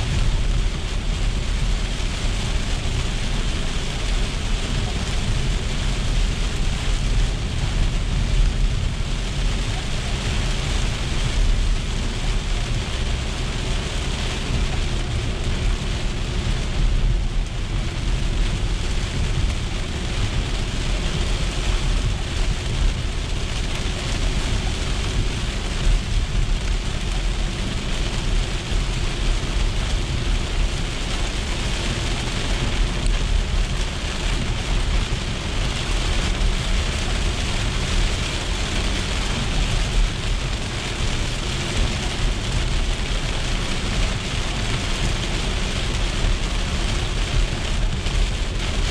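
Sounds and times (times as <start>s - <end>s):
car rumbling on wet road: 0.0s - 48.9s
heavy rain on car windshield: 0.0s - 48.9s.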